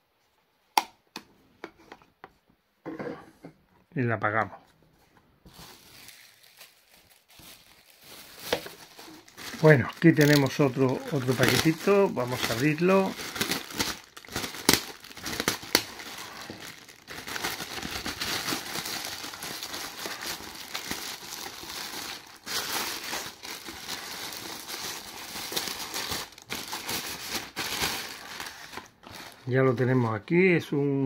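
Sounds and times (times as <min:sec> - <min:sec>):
plastic mailer bag crinkling: 0:05.5 - 0:30.3.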